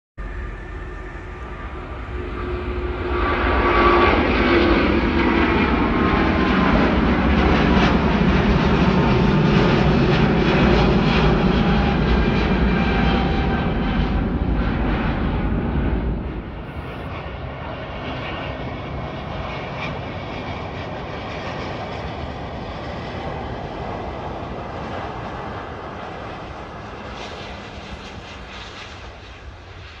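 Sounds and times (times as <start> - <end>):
jet engines at takeoff thrust: 0.2 - 30.0.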